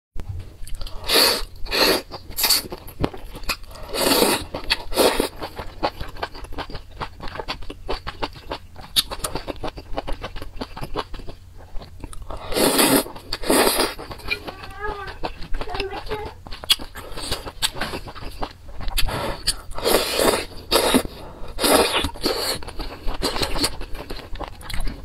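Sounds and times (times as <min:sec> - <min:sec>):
chewing with wet clicks: 0:00.6 - 0:12.4, 0:13.0 - 0:25.0
person slurping noodles: 0:00.9 - 0:02.7, 0:03.7 - 0:05.5, 0:12.3 - 0:14.5, 0:18.9 - 0:23.8.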